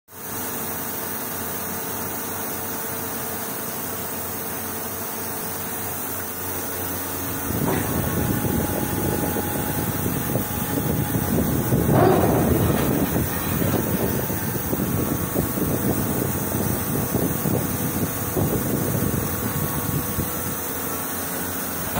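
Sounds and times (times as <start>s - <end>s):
heavy workshop machine humming: 2.1s - 21.9s
uneven rumble: 7.2s - 20.5s.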